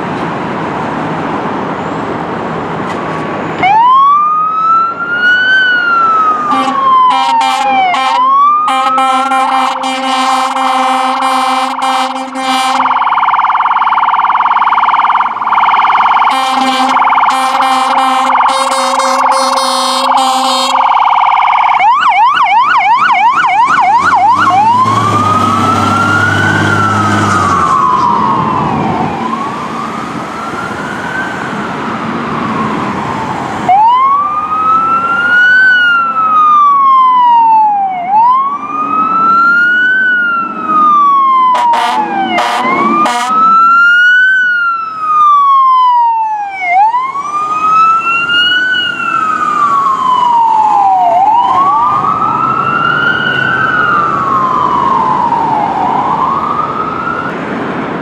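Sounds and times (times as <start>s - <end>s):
fire truck sirens wailing: 1.4s - 58.0s
air horn blasts: 6.5s - 13.1s, 16.3s - 21.0s, 41.5s - 43.5s.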